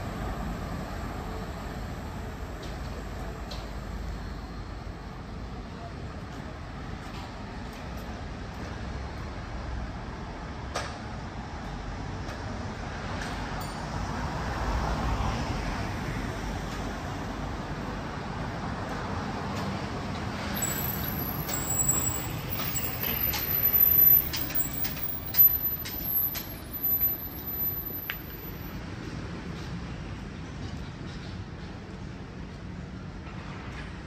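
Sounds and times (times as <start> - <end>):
city street traffic: 0.0 - 34.0
sharp clicks and knocks: 21.4 - 26.7.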